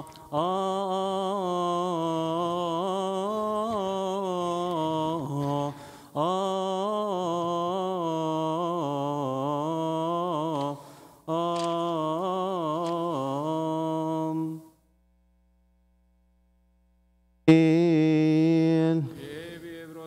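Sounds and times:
man singing a chant: 0.0s - 14.7s, 17.5s - 20.0s
singer breathing: 5.7s - 6.2s, 10.7s - 11.3s.

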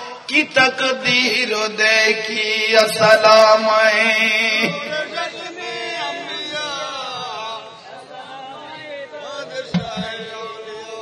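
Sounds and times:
man singing devotional song: 0.0s - 7.9s, 8.7s - 11.0s
short thump: 9.7s - 10.3s.

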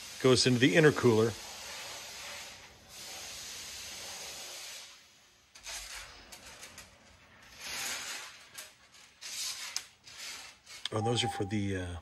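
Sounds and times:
steady hiss: 0.0s - 7.0s.

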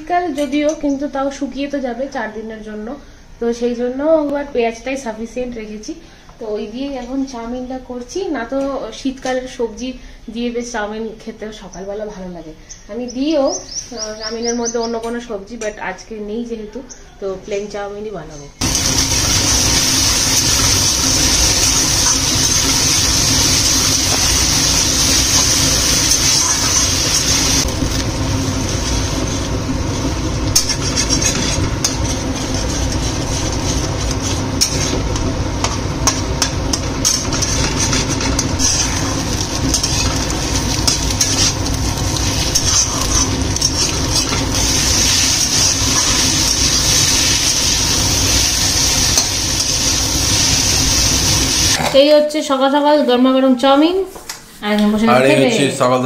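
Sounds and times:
metal spatula scraping wok: 18.6s - 27.7s, 28.7s - 52.0s
food sizzling in oil: 18.6s - 52.2s.

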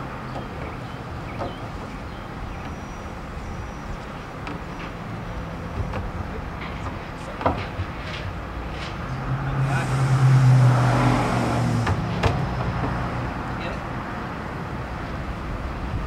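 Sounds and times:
wooden parts knocking: 0.2s - 1.9s, 4.4s - 8.4s, 11.8s - 13.1s.

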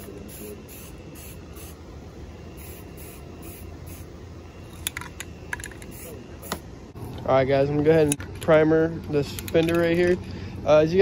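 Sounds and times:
aerosol spray can hissing: 0.0s - 1.8s, 2.6s - 4.2s, 5.8s - 6.6s.

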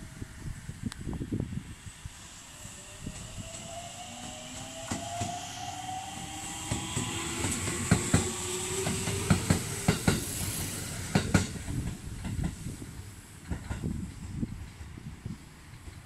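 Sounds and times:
electric train motor whine: 0.0s - 10.6s
train wheels clicking over rail joints: 2.8s - 16.0s.

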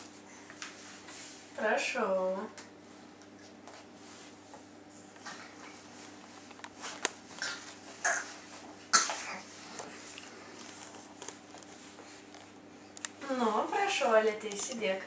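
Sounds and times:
baby making cough-like sounds: 7.4s - 9.4s.

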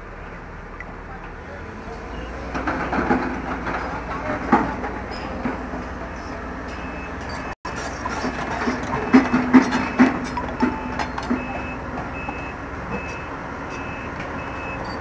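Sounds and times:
excavator diesel engine running: 0.0s - 15.0s
metallic clanks: 2.5s - 12.4s.

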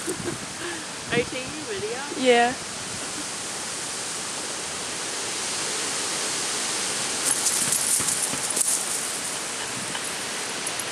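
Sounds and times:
steady hiss: 0.0s - 10.9s
dry leaves crackling under paws: 7.1s - 10.9s.

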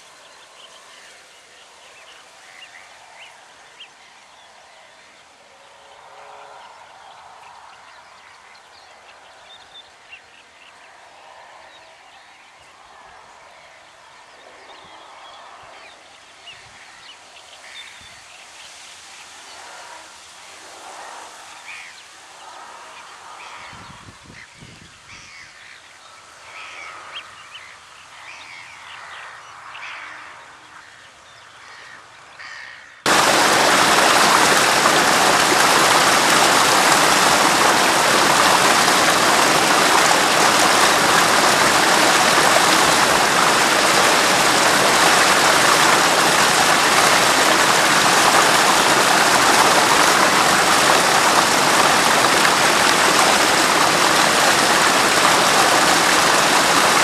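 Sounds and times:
loud steady rushing hiss: 33.1s - 57.0s.

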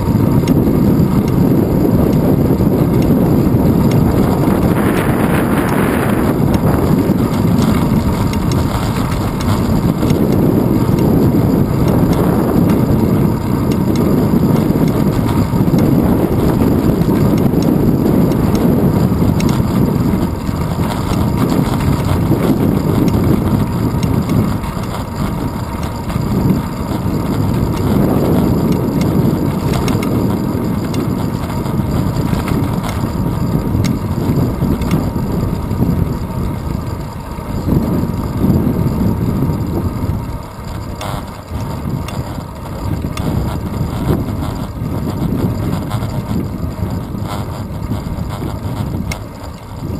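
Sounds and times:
wind rushing over microphone: 0.0s - 49.9s.

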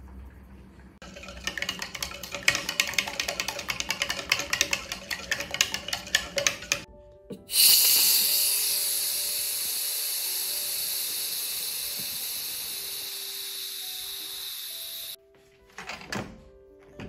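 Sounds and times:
steam hissing from valve: 7.5s - 15.2s.

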